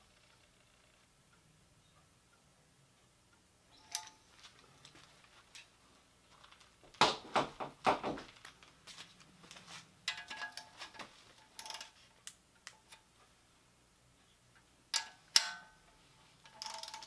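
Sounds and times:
light metallic clinks: 3.7s - 5.7s.

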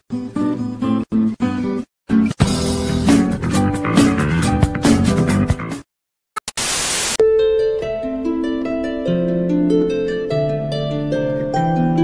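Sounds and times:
ukulele notes plucked: 7.2s - 12.0s.

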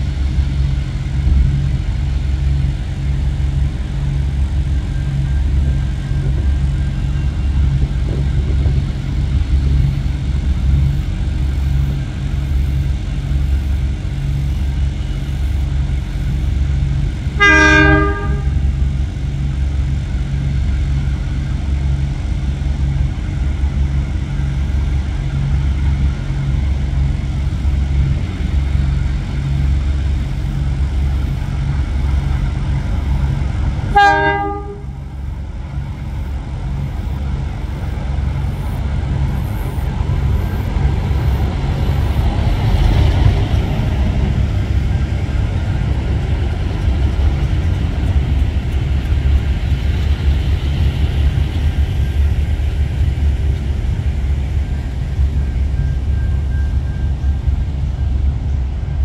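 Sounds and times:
diesel locomotive engines throbbing: 0.0s - 59.0s
freight train clatter: 0.0s - 59.0s
train horn blasts: 17.4s - 18.8s, 33.9s - 35.2s.

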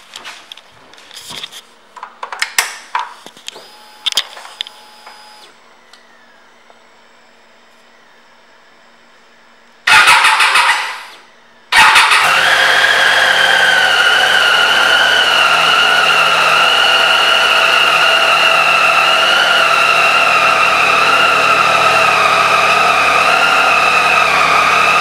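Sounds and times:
motorcycle engine starting and idling: 9.8s - 16.5s.

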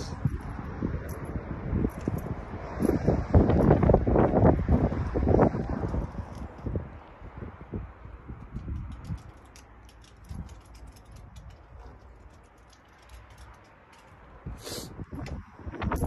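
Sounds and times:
phone being handled: 8.4s - 14.4s.

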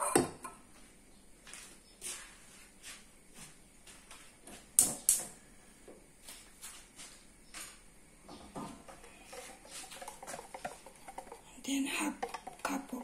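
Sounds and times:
kitchenware clinking: 8.5s - 13.0s.

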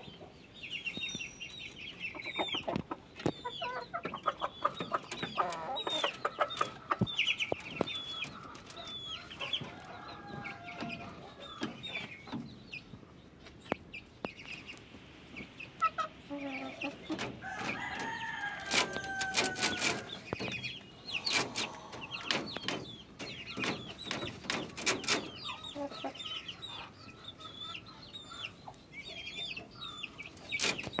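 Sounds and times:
chicken calls and clucks: 0.0s - 31.0s
rooster crowing: 17.4s - 20.1s.

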